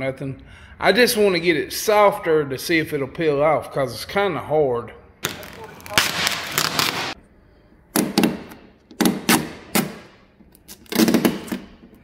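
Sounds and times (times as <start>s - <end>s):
vinyl decal ripping off: 5.2s - 7.2s.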